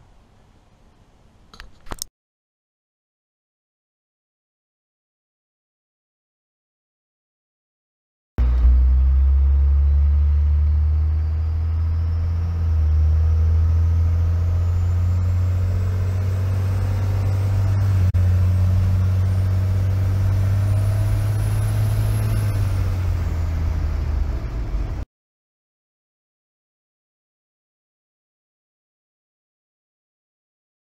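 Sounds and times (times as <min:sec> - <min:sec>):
diesel engine accelerating: 0:08.4 - 0:25.0.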